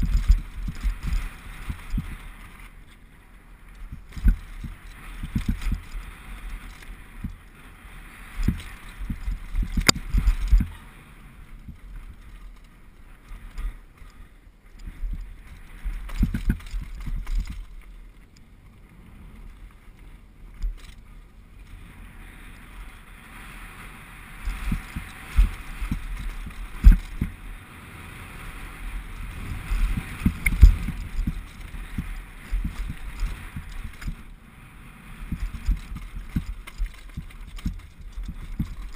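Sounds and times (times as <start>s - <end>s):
bike clattering: 0.0s - 3.0s, 3.7s - 7.6s, 11.6s - 18.8s, 24.4s - 27.4s, 29.0s - 34.3s, 35.2s - 38.9s
tyres crunching over stones: 24.5s - 27.4s, 29.2s - 34.3s, 35.3s - 38.9s.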